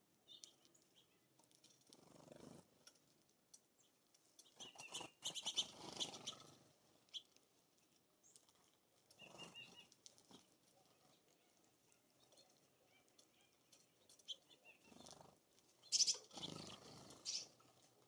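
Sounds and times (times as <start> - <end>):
faint bird chirps: 0.2 - 1.3, 3.8 - 7.3, 9.1 - 17.6.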